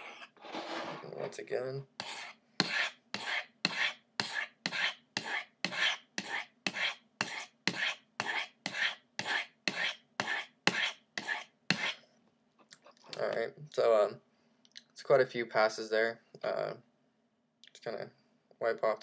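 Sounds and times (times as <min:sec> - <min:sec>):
knife scraping on ceramic rods: 0:00.0 - 0:01.1, 0:02.0 - 0:12.0.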